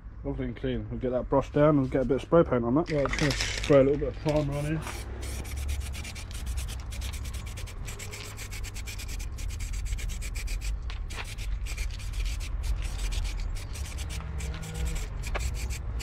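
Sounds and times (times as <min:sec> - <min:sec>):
aerosol can hissing: 0:04.5 - 0:16.0.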